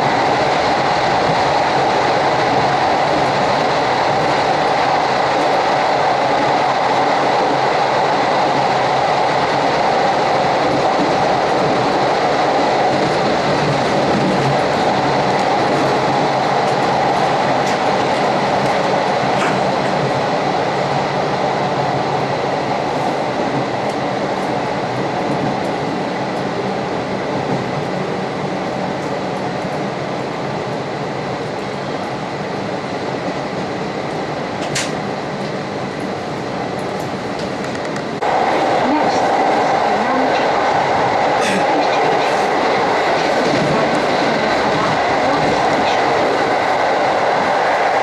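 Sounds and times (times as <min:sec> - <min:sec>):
train wheels rumbling on rails: 0:00.0 - 0:48.0.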